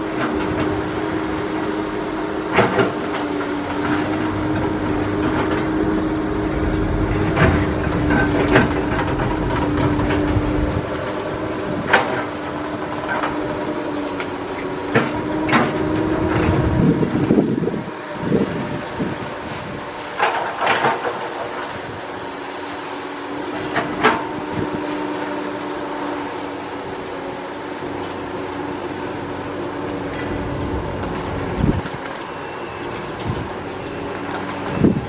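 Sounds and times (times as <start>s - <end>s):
diesel machinery droning: 0.0s - 35.0s
metal clanks and rattles: 2.5s - 13.5s.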